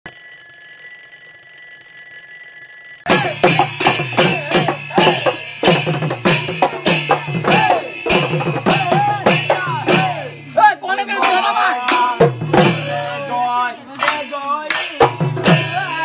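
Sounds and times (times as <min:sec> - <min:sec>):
electronic ringing tone: 0:00.1 - 0:03.1
folk music with driving drums: 0:03.1 - 0:16.0
voices singing: 0:07.3 - 0:16.0.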